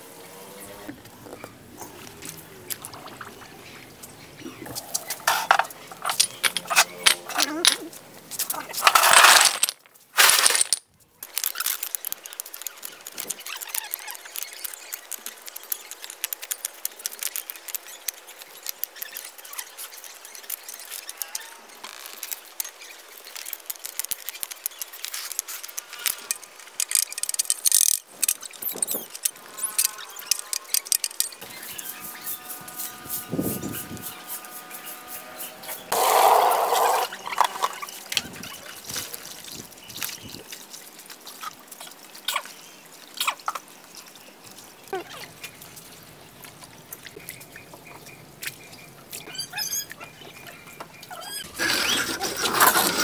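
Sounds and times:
clay bricks clattering: 0:05.1 - 0:21.1, 0:22.1 - 0:29.3, 0:51.4 - 0:53.0
bricks clinking and knocking: 0:05.3 - 0:07.9, 0:08.7 - 0:10.8.

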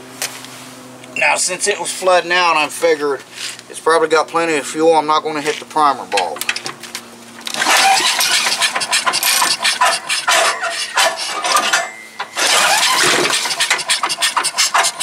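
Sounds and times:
recoil pull-starter being pulled: 0:07.4 - 0:15.0.

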